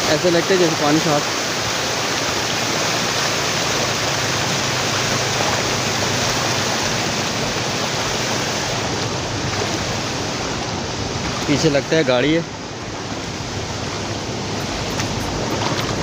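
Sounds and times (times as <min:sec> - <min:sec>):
floodwater rushing: 0:00.0 - 0:16.0.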